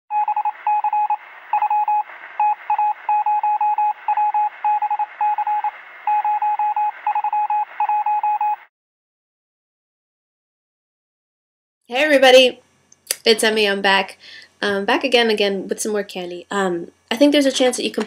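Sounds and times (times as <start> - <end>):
morse code beeps: 0.1 - 8.6
radio static: 0.2 - 7.9.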